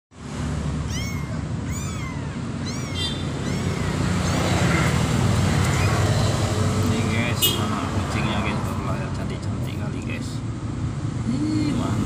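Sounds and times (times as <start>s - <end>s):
kittens mewing: 0.8s - 6.7s.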